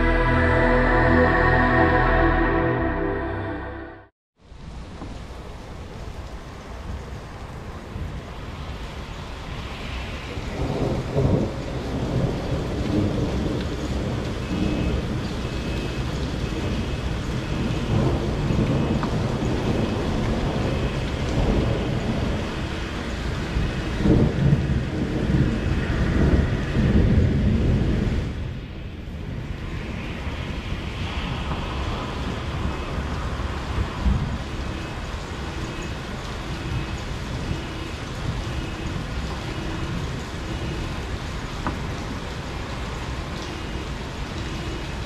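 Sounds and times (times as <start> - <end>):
thunder rumbling: 0.0 - 3.9, 10.5 - 35.6
steady rain: 4.4 - 45.0.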